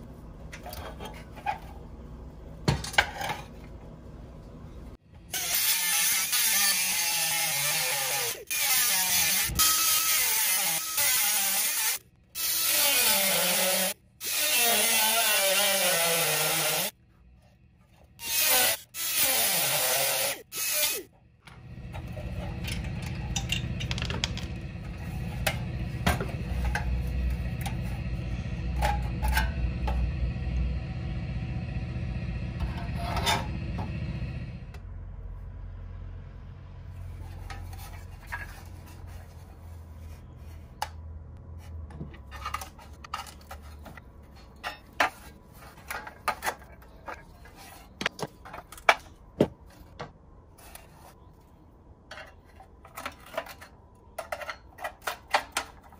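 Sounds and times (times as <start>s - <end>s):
rotary tool grinding steel: 5.3s - 17.0s, 18.2s - 21.1s
low steady hum: 21.1s - 55.9s.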